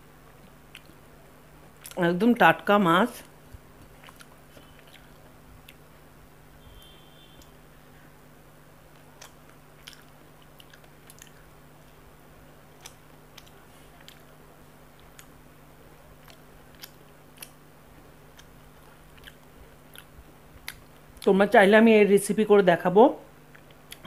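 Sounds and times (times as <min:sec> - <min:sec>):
faint steady hum: 0:00.0 - 0:24.0
chewing: 0:00.3 - 0:01.0, 0:03.8 - 0:05.8, 0:08.9 - 0:12.0, 0:12.8 - 0:14.3, 0:14.9 - 0:15.4, 0:16.2 - 0:17.6, 0:18.3 - 0:21.3
eating by hand: 0:00.3 - 0:01.0, 0:03.6 - 0:05.9, 0:08.9 - 0:12.1, 0:12.7 - 0:21.3.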